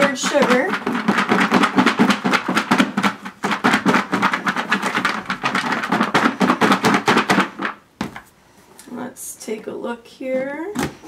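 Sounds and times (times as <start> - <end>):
cereal rattling in shaken bowl: 0.0 - 7.8.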